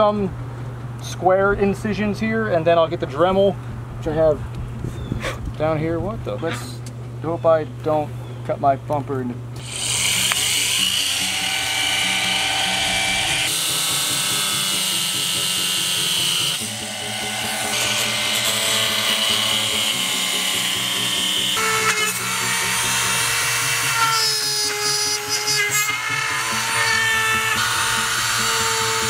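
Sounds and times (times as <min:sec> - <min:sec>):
cut-off disc whining through metal: 0:09.6 - 0:29.0
rotary tool whine: 0:09.6 - 0:29.0.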